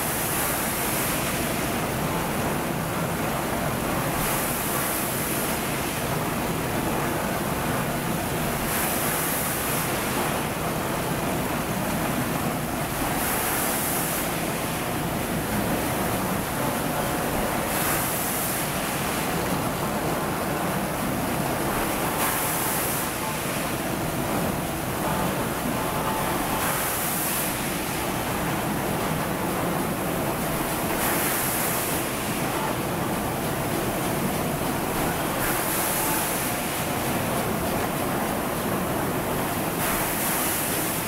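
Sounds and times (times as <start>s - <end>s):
labelling machine hiss and whir: 34.8s - 37.1s.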